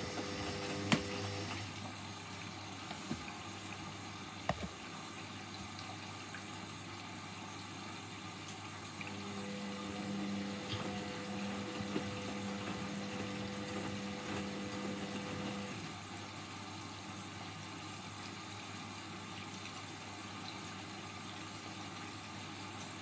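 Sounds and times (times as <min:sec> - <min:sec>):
washing machine drum turning: 0:00.0 - 0:01.7, 0:09.3 - 0:15.7
machine humming tone: 0:09.1 - 0:15.8.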